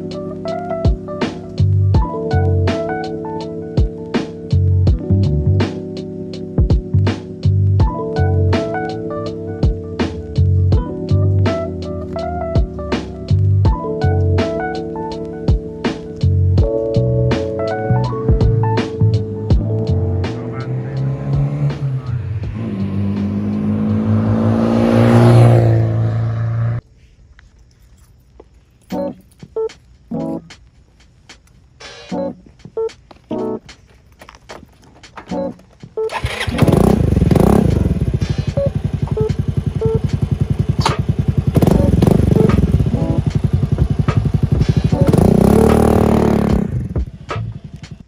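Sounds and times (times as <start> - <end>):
scooter engine running: 36.1 - 48.0.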